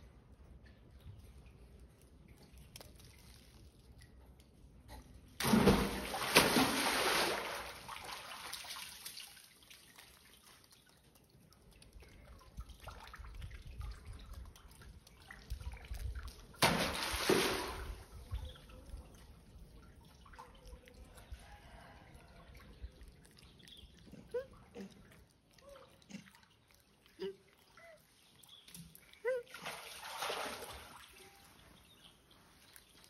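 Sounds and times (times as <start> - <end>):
water sloshing against walls: 0.2 - 33.0
monkey splashing into water tank: 5.4 - 10.5, 15.6 - 18.6, 28.9 - 31.4.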